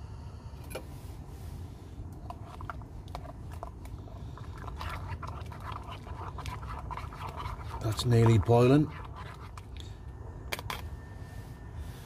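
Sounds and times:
camping stove rumble: 0:02.0 - 0:10.0.

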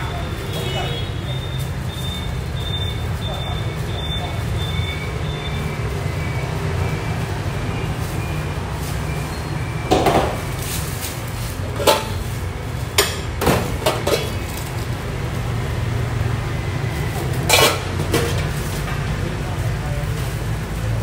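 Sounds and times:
ceramic bowls clinking: 0:11.6 - 0:12.3, 0:12.9 - 0:14.8, 0:17.1 - 0:18.6.

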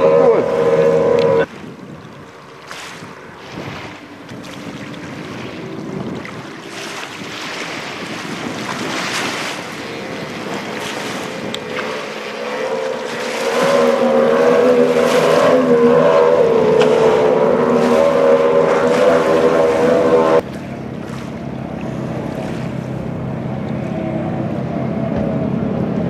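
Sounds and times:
wind on microphone: 0:00.0 - 0:20.4
powerboat engines drone: 0:00.0 - 0:26.0.

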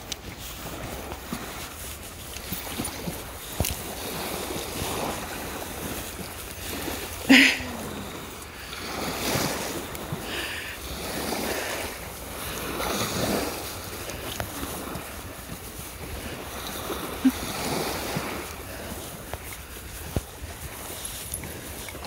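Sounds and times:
waves washing on sandy shore: 0:00.0 - 0:22.0
wind rumbling on microphone: 0:00.0 - 0:22.0.

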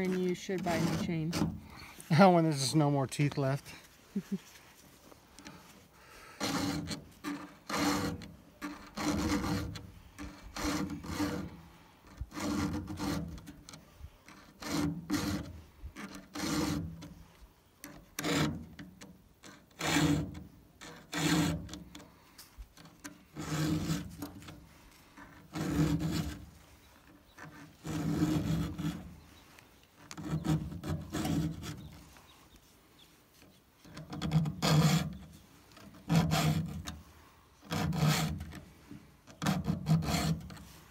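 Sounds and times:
file rasping across chainsaw chain: 0:00.0 - 0:02.9, 0:05.4 - 0:32.3, 0:33.8 - 0:40.9.

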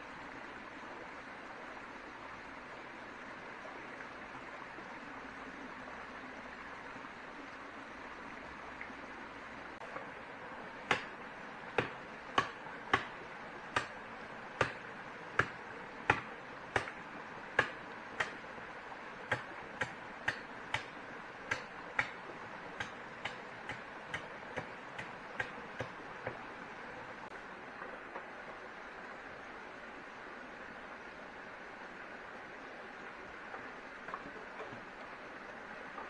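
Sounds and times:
sharp knocks: 0:14.6 - 0:14.8, 0:15.4 - 0:17.0.

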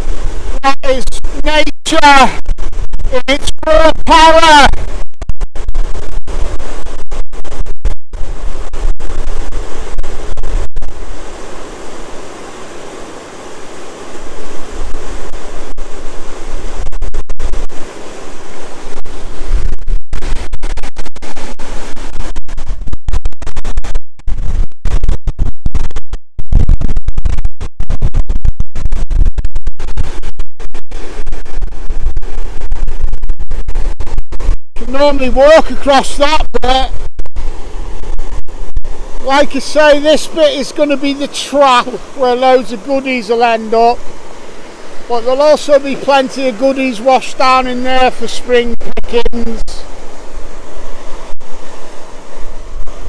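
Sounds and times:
wind buffeting microphone: 0:00.0 - 0:53.0
floodwater rushing: 0:08.6 - 0:16.8, 0:17.4 - 0:20.5, 0:34.8 - 0:53.0.

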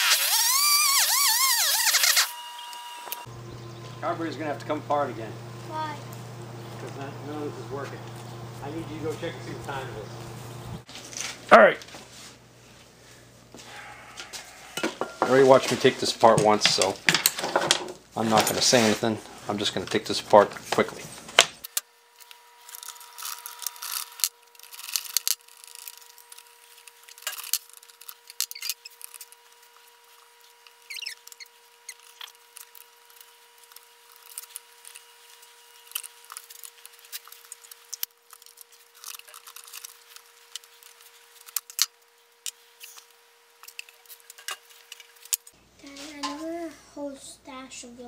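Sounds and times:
steady high hum: 0:00.4 - 0:17.1.

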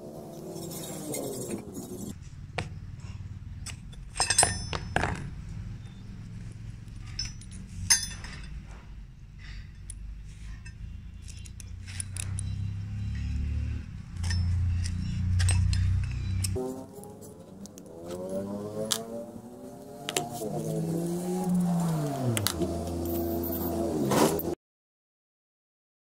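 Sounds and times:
steel parts clinking: 0:03.6 - 0:18.3.

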